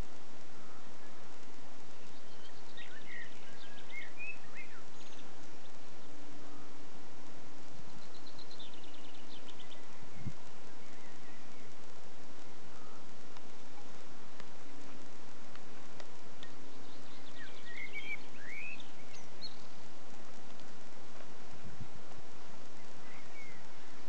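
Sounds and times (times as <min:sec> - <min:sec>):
birds chirping: 0:00.0 - 0:24.0
outdoor background hiss: 0:00.0 - 0:24.0.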